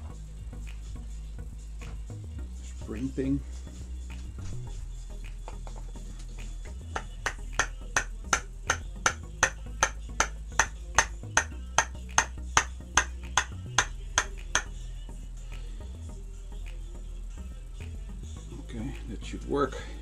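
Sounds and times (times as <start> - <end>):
low background music: 0.0 - 20.0
hand tapping metal shaft: 7.0 - 14.7.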